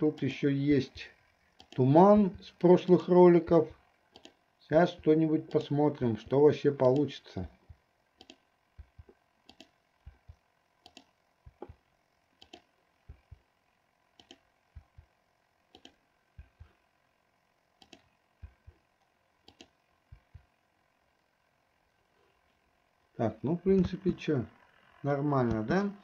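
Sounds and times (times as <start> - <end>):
computer mouse clicks: 1.6 - 2.4, 4.1 - 11.8, 12.4 - 13.4, 14.2 - 15.1, 15.7 - 16.8, 17.8 - 20.5.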